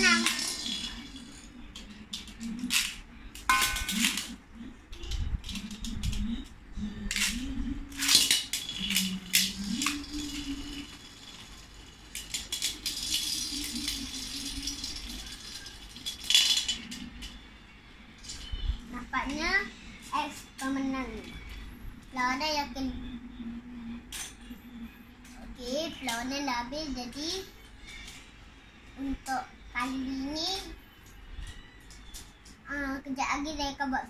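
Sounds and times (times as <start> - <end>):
spinning tops rattling in metal wok: 0.0 - 1.5, 7.1 - 17.3.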